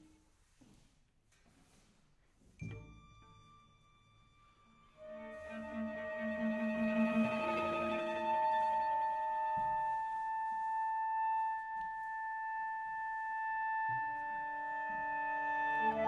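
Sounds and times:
low orchestral instruments: 2.6 - 16.0
wind instrument long high note: 3.8 - 16.0.

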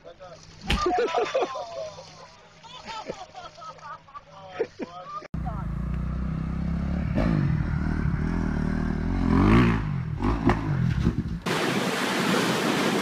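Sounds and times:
dirt bike engine revving: 5.4 - 11.3.

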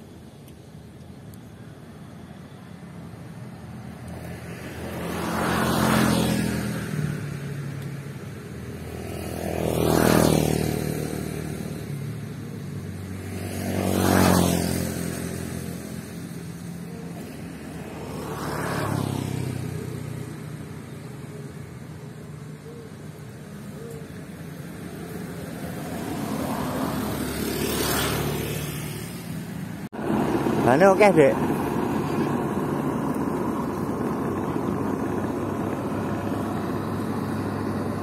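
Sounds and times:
vehicles passing: 0.0 - 38.0
combine harvester engine hum: 14.7 - 38.0.

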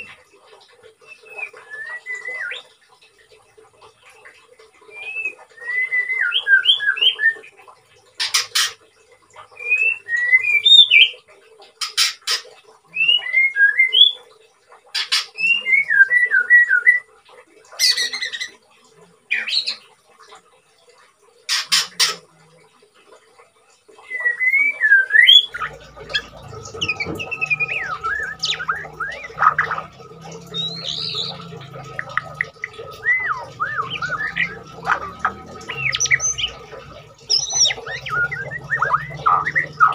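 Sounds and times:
bird singing whistled notes: 24.1 - 36.7, 37.3 - 39.9
low steady hum: 25.4 - 39.9.

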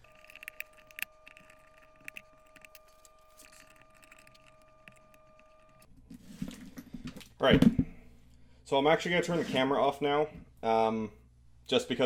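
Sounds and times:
faint high whine: 0.0 - 6.2.

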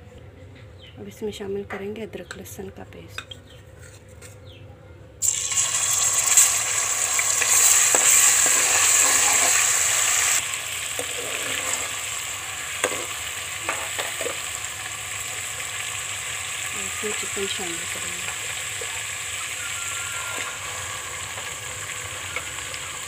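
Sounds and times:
paste sizzling in hot oil: 5.2 - 23.0.

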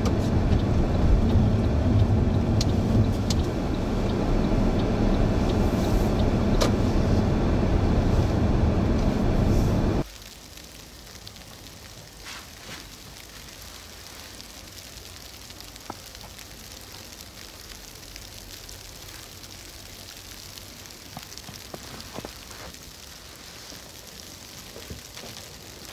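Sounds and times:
light ticks and crackles: 0.0 - 7.3, 10.0 - 25.9
vehicle road and engine noise: 0.0 - 10.1
faint steady hiss: 8.0 - 25.9.

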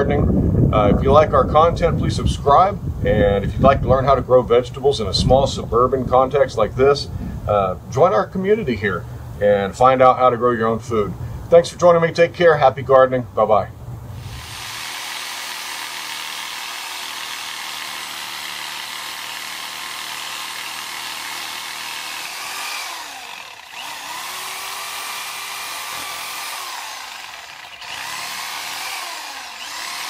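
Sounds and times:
reciprocating saw cutting roots: 14.2 - 30.0.

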